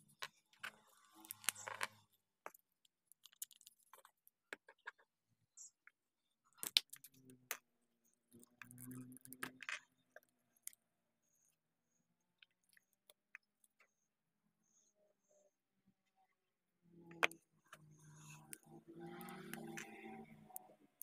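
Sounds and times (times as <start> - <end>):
hands handling plastic toy: 0.1 - 10.8.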